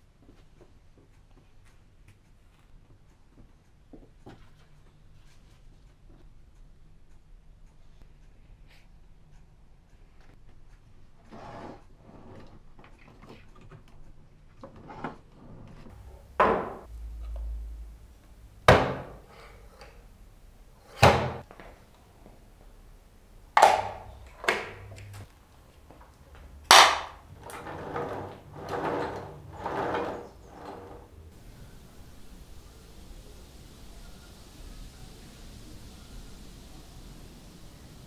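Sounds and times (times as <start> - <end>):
wooden scraping and rattling: 27.4 - 31.2.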